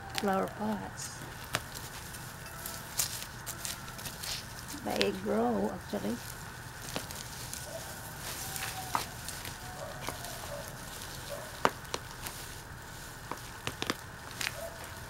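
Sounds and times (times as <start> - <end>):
trowel scraping in soil: 1.4 - 5.2.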